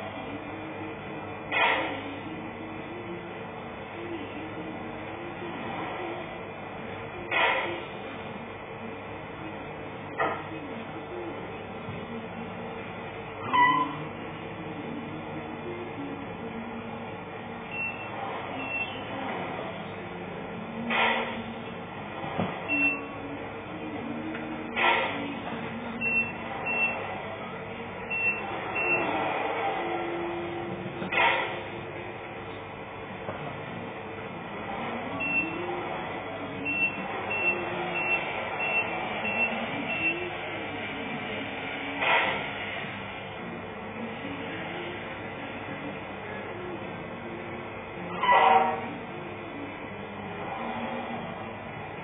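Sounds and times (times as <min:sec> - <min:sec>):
reversing beeps: 0:28.1 - 0:29.1, 0:35.2 - 0:35.6, 0:36.6 - 0:40.3.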